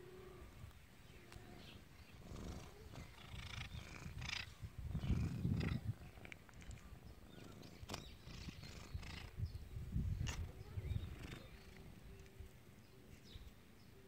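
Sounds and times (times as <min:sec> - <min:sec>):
cat growling: 0:02.2 - 0:06.4.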